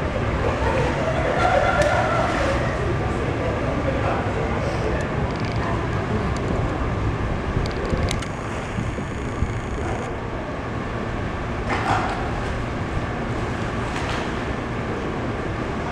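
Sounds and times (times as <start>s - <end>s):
low background rumble: 0.0s - 15.9s.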